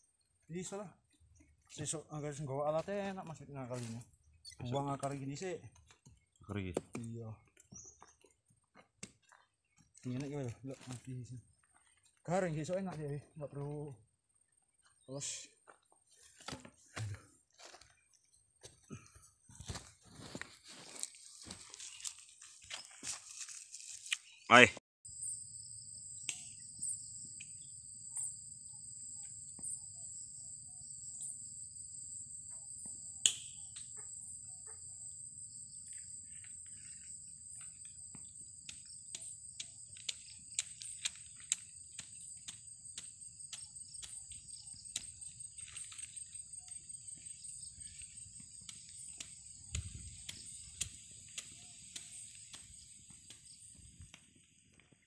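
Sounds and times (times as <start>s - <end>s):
insects trilling: 0.0s - 15.5s, 18.9s - 55.0s
sharp clicks: 33.2s - 33.9s, 38.7s - 45.2s.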